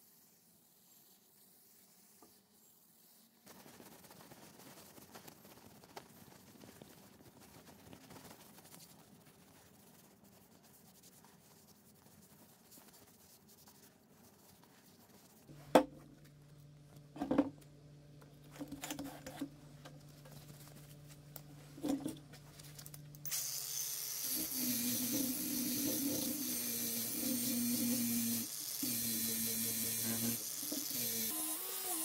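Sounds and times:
faint rubbing: 0:00.2 - 0:15.7
angle grinder whining on metal: 0:23.3 - 0:32.0.

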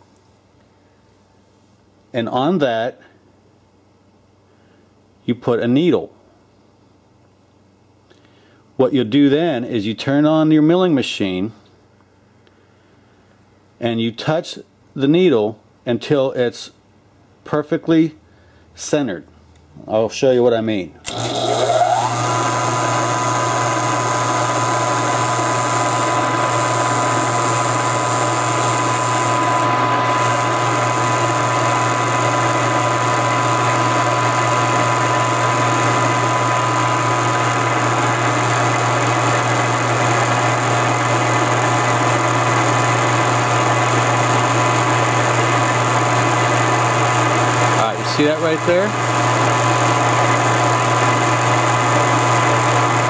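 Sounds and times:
milling machine running: 0:21.1 - 0:53.0.

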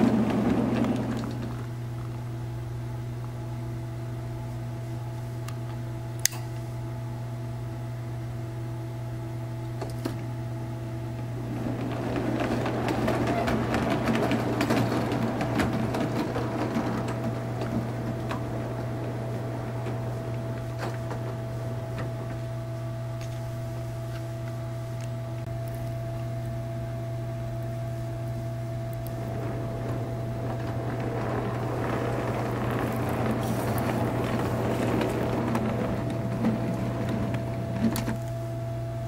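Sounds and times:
wheels clicking over rail joints: 0:00.0 - 0:02.3, 0:11.1 - 0:26.2, 0:27.5 - 0:38.5.

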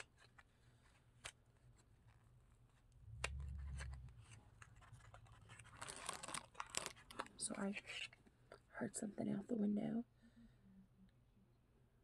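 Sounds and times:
rustling: 0:00.0 - 0:08.6
brief low rumble: 0:03.0 - 0:04.6.

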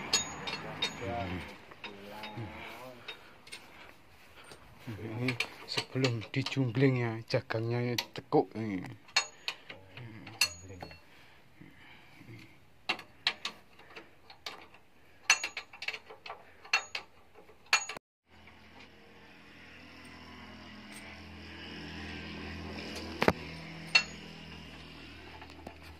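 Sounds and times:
metallic clinks of tools on wheel: 0:00.0 - 0:03.7, 0:09.0 - 0:11.1, 0:12.9 - 0:18.0, 0:23.8 - 0:25.9.

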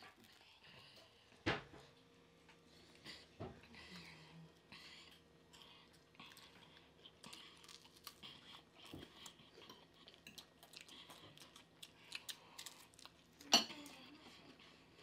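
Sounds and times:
chewing crispy fried fish: 0:02.9 - 0:15.0.

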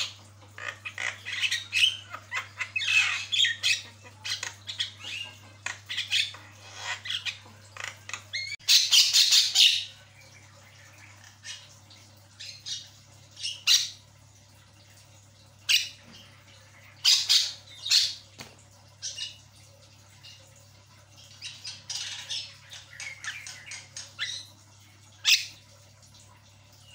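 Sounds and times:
bird squawking and chattering: 0:00.0 - 0:09.9.

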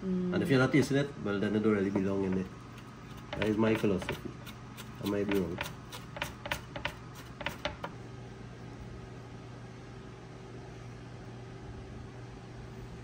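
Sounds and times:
low mechanical hum: 0:00.0 - 0:13.0
sharp knocks: 0:05.3 - 0:08.0.

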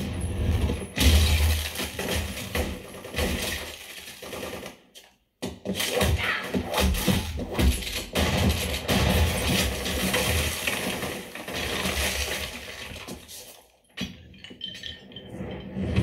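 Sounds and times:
stone debris crumbling: 0:00.0 - 0:04.7, 0:07.0 - 0:13.7
heavy gunfire: 0:08.1 - 0:12.7.

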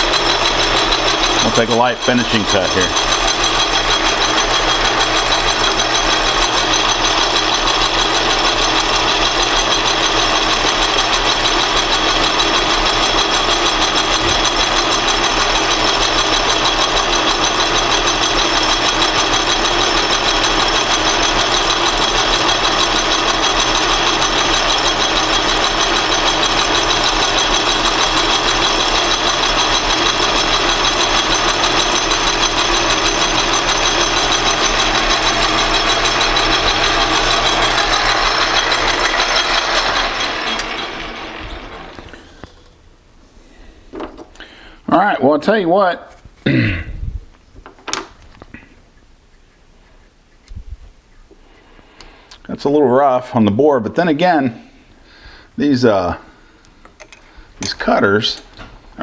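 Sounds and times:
metal lathe running: 0:00.0 - 0:42.8
high whines: 0:00.0 - 0:43.3.

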